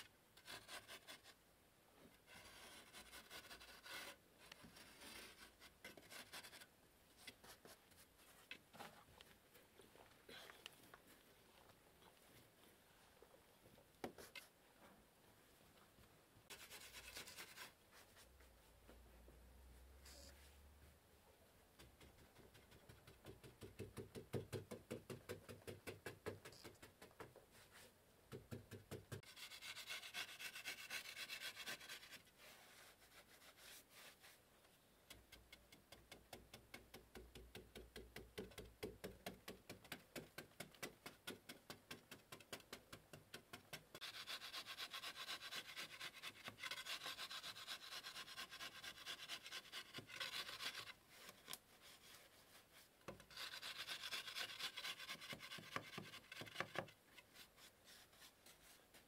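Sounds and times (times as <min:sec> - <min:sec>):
wooden stick scraping mud wall: 0:02.2 - 0:09.0, 0:35.1 - 0:59.0.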